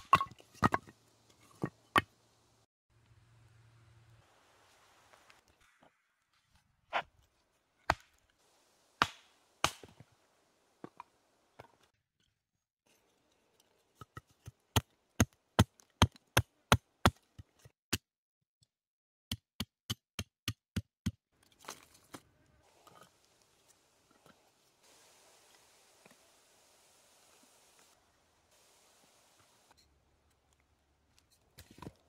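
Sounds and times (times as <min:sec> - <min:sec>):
axe chopping wood: 0:07.9 - 0:08.2, 0:09.0 - 0:10.0.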